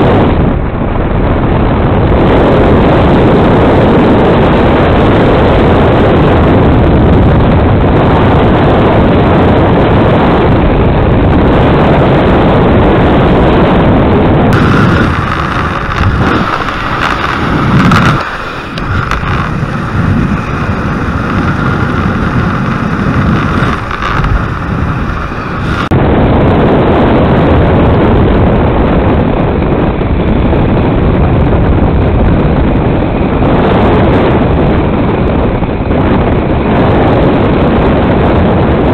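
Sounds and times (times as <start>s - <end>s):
wind rushing over microphone: 0.0s - 38.9s
steady mid-pitched hum: 0.1s - 28.4s.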